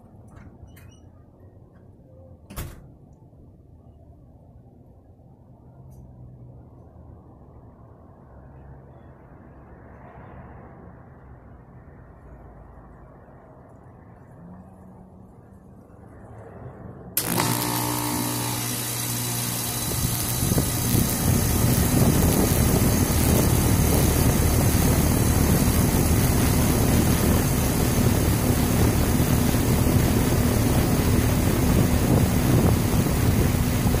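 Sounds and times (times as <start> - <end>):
condenser fan rush of air: 17.1 - 34.0
air conditioner unit hum: 17.2 - 34.0.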